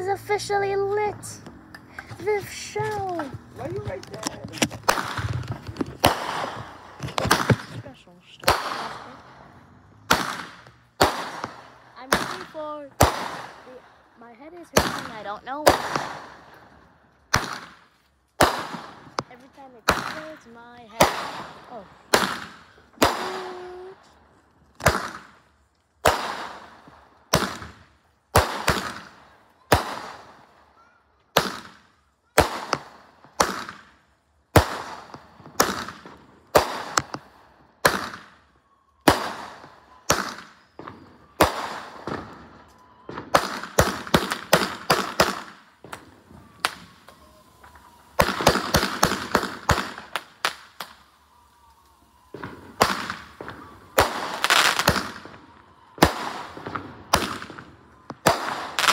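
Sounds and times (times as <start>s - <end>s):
fireworks bangs: 0.0s - 58.9s
fireworks crackling volleys: 0.0s - 58.9s.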